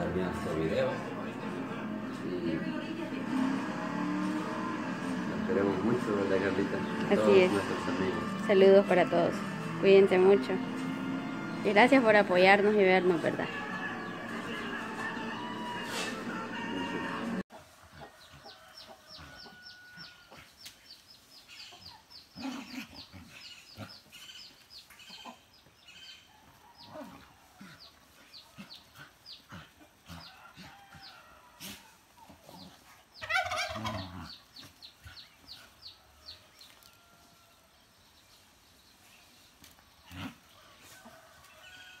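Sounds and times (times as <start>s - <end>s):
harsh cry: 13.3s - 17.4s
dogs scuffling on dirt: 26.0s - 37.6s, 38.4s - 42.0s
fowl clucking: 33.2s - 34.4s.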